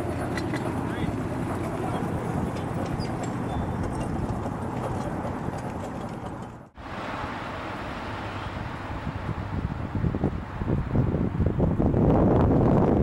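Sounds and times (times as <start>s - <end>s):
miniature train rumbling past: 0.0s - 7.0s
steady rushing noise: 6.5s - 13.0s.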